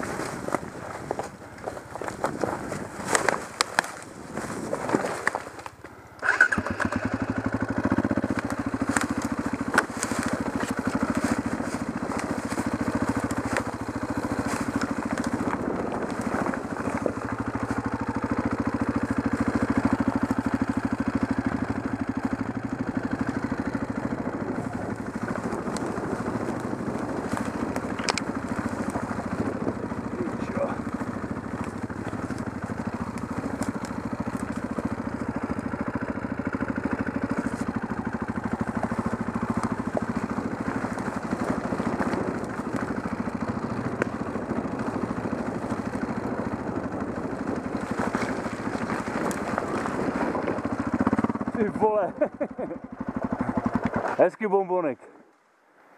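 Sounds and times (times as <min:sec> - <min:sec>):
leaves and twigs crackling: 0:00.0 - 0:54.4
motorcycle engine running: 0:00.0 - 0:55.3.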